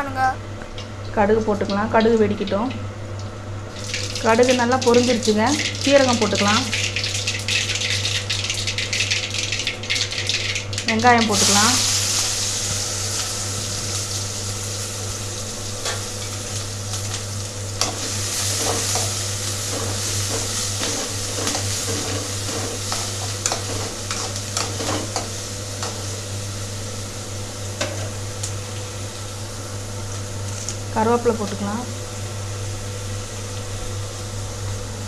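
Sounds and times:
onion sizzling in oil: 0:03.8 - 0:30.9.

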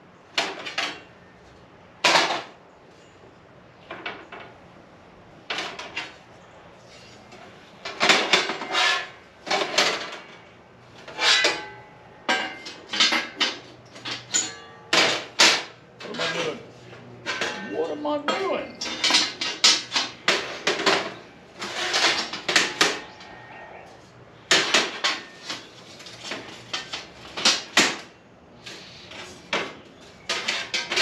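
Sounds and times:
metal panels clanking and scraping: 0:06.8 - 0:23.6, 0:24.5 - 0:28.1, 0:28.7 - 0:31.0.

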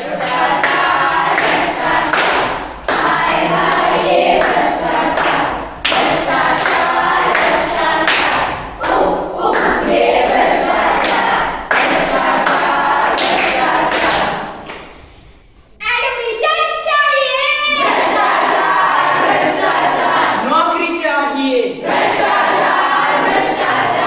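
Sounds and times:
children singing in chorus: 0:00.0 - 0:14.9, 0:17.6 - 0:20.5, 0:21.8 - 0:24.0
rhythmic clapping: 0:00.0 - 0:15.1, 0:17.6 - 0:20.4, 0:21.8 - 0:24.0
rhythmic stamping: 0:00.0 - 0:15.7, 0:21.8 - 0:24.0.

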